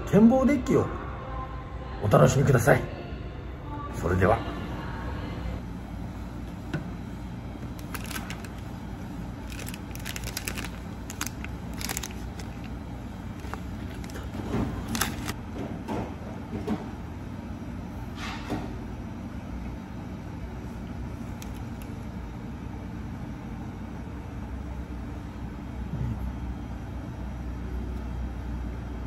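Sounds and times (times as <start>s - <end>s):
low room hum: 0.0s - 29.0s
plastic wrapper crinkling and tearing: 7.6s - 15.4s, 21.4s - 21.9s.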